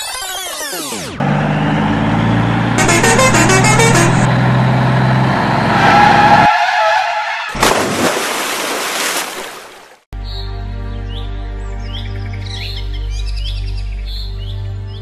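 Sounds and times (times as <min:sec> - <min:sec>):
truck engine running: 0:01.1 - 0:06.5
tyre skid screech: 0:05.6 - 0:07.6
splash into muddy water: 0:07.6 - 0:10.0.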